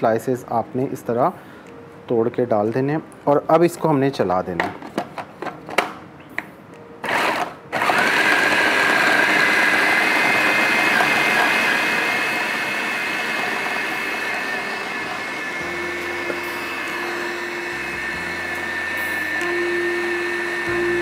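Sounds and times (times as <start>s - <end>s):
food processor motor whine: 7.0s - 21.0s.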